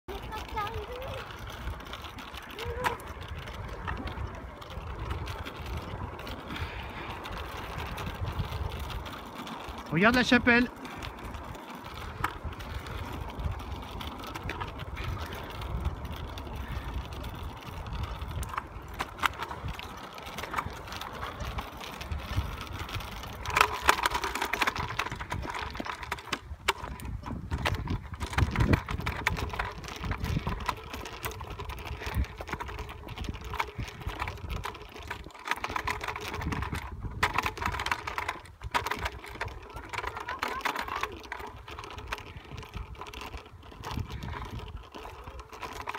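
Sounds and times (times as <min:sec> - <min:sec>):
bicycle clicking and rattling: 0:00.0 - 0:45.9
wind on microphone: 0:00.1 - 0:45.9.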